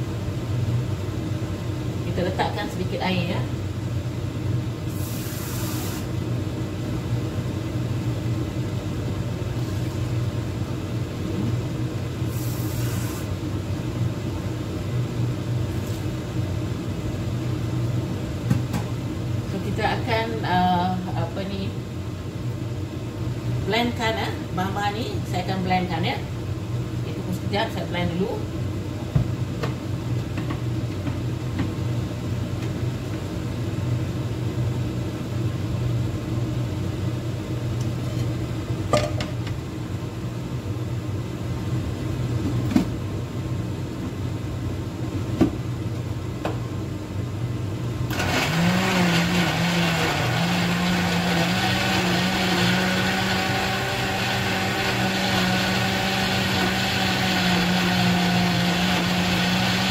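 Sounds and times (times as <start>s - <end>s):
blender motor running: 48.1s - 59.9s.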